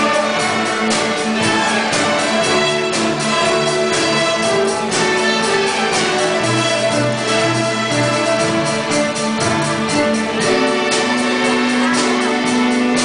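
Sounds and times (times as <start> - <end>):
drum steady beat: 0.0 - 13.0
string orchestra playing: 0.0 - 13.0.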